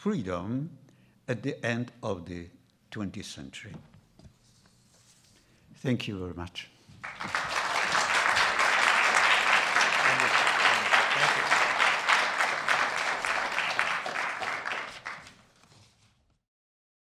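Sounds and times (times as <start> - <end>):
audience applauding: 7.0 - 15.4.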